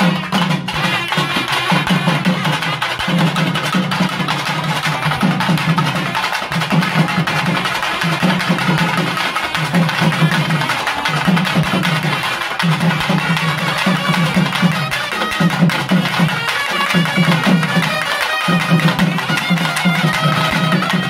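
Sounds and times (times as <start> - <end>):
reed pipes playing melody: 0.0 - 3.4, 12.0 - 21.0
drums beating fast rhythms: 0.0 - 21.0.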